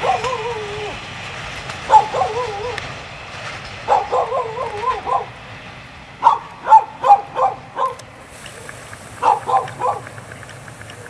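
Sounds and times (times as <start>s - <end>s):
dog whining and yelping: 0.0s - 1.0s, 1.9s - 2.8s, 3.9s - 5.3s, 6.2s - 8.0s, 9.2s - 10.1s.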